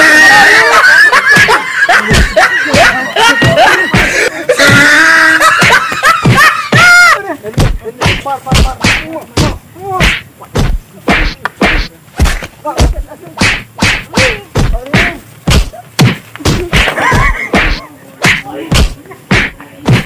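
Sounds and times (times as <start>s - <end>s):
shouts and grunts: 0.0s - 1.2s, 4.5s - 5.5s, 6.7s - 7.3s
punches and slaps: 7.6s - 20.0s.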